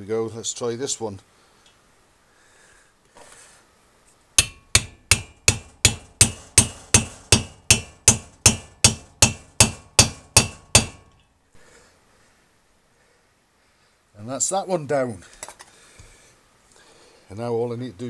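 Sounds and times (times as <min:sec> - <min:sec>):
hammer striking metal: 0:04.4 - 0:11.2.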